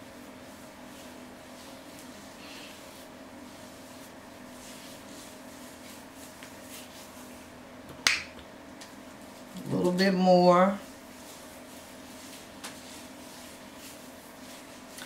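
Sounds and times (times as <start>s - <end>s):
hairbrush swishing through wet hair: 0.0s - 7.6s, 10.8s - 15.0s.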